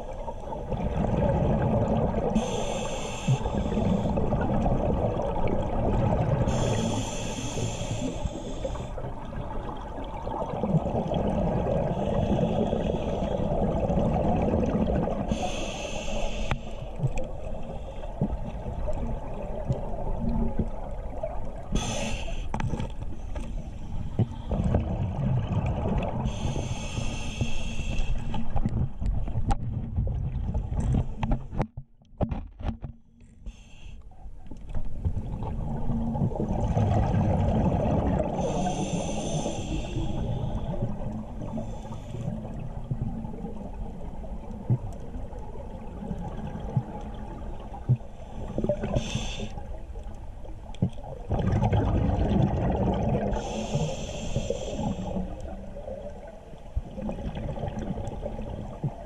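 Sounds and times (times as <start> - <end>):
muffled rumble of water: 0.0 - 59.0
scuba regulator breathing hiss: 2.4 - 4.2, 6.5 - 9.0, 11.9 - 13.5, 15.3 - 18.2, 21.7 - 22.6, 26.3 - 28.5, 33.5 - 34.0, 38.4 - 42.4, 48.1 - 49.7, 53.3 - 55.5.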